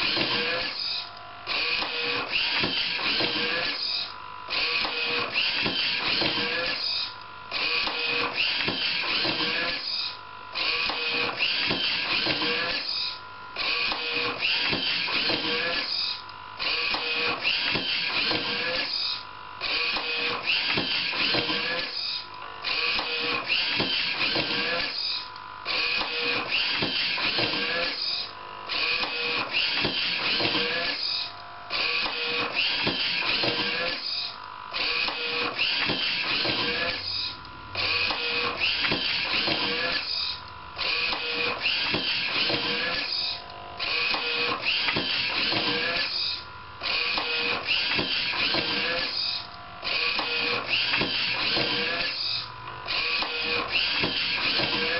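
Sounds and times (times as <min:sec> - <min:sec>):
mechanical whirring with whining tones: 0:00.0 - 0:54.9.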